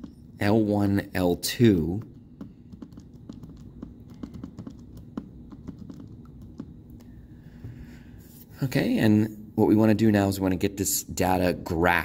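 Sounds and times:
calculator buttons clicking: 0:02.0 - 0:06.7.

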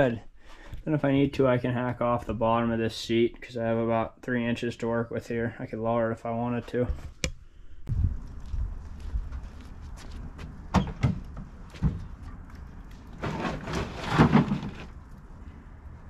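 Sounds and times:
steady low rumble: 0:07.8 - 0:10.7
sharp knocks and clunks: 0:10.4 - 0:12.4, 0:13.2 - 0:14.9.

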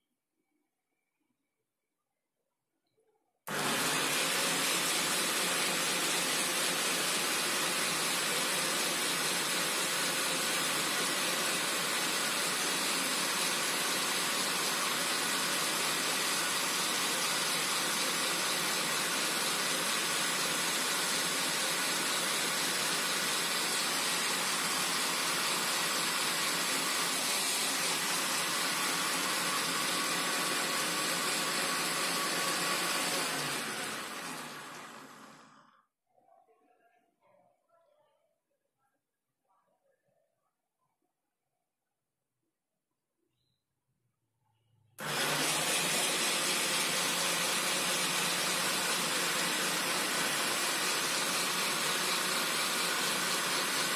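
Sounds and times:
electric motor running: 0:45.0 - 0:53.9.

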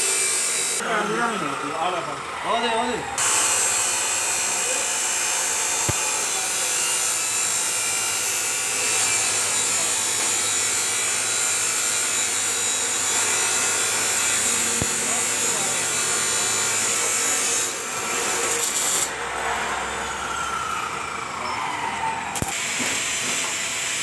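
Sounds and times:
welding arc hissing: 0:00.0 - 0:00.8, 0:03.2 - 0:19.1, 0:22.4 - 0:24.0
sharp click: 0:22.4 - 0:22.6.

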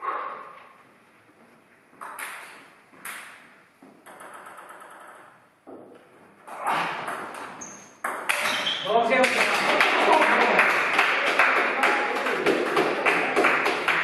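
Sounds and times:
table tennis ball hits: 0:02.0 - 0:06.0, 0:06.9 - 0:10.0.

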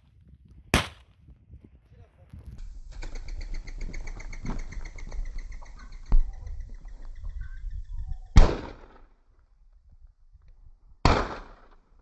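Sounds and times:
shotgun shot: 0:00.7 - 0:01.0, 0:08.4 - 0:09.1, 0:11.0 - 0:11.8.

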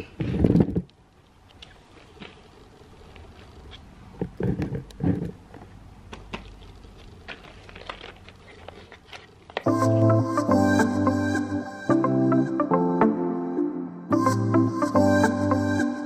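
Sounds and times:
music: 0:09.7 - 0:16.0.

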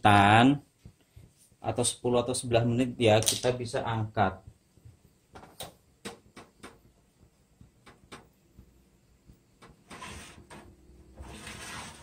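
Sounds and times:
metal tray sliding on rack: 0:09.9 - 0:12.0.

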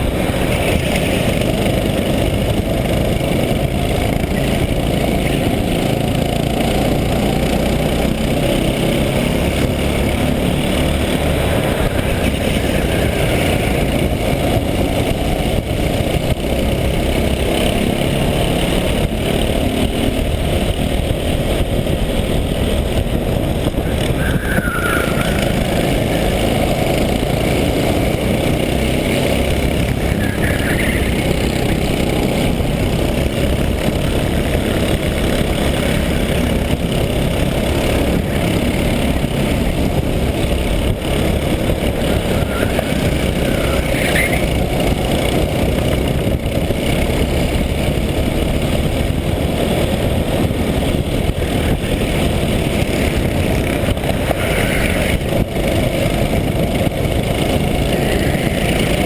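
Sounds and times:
kart engine running hard: 0:00.0 - 0:59.0
wind noise: 0:00.0 - 0:59.0
brief high squeal: 0:24.0 - 0:25.7.

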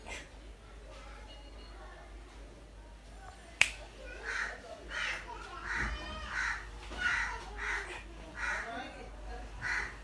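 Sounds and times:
crow cawing: 0:04.2 - 0:08.8, 0:09.6 - 0:10.0.

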